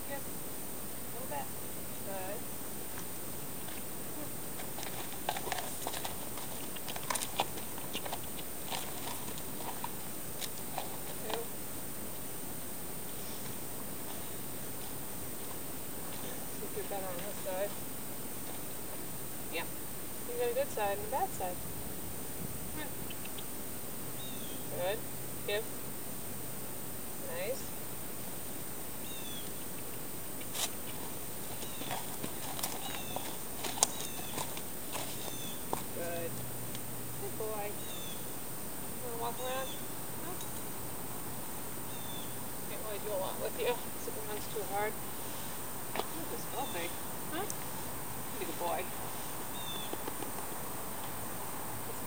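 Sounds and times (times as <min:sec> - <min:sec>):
steady hiss: 0:00.0 - 0:52.0
horse hooves on frozen ground: 0:02.9 - 0:19.1, 0:30.4 - 0:36.4, 0:45.8 - 0:52.0
small bird chirping: 0:22.8 - 0:24.8, 0:29.0 - 0:36.3, 0:37.6 - 0:38.4, 0:39.1 - 0:40.8, 0:41.8 - 0:42.9, 0:48.3 - 0:50.4
footsteps on frozen ground: 0:30.4 - 0:36.0.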